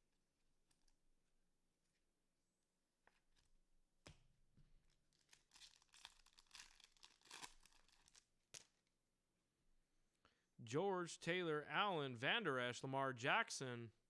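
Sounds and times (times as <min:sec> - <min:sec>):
plastic wrap crinkling: 0:04.9 - 0:08.7.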